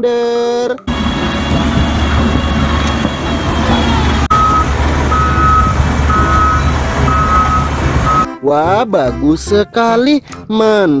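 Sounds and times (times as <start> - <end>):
diesel engine running: 0.9 - 8.3
reversing alarm beeps: 0.9 - 8.3.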